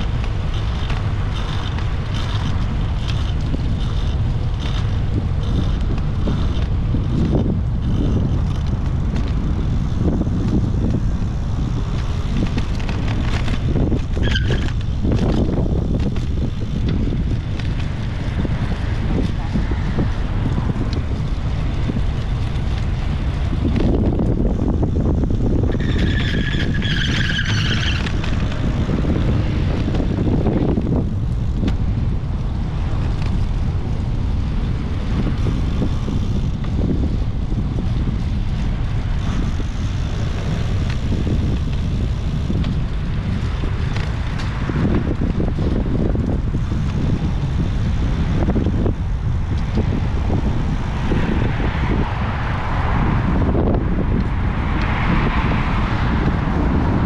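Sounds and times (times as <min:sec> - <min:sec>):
tyre and road noise: 0:00.0 - 0:57.0
wind buffeting microphone: 0:00.0 - 0:57.0.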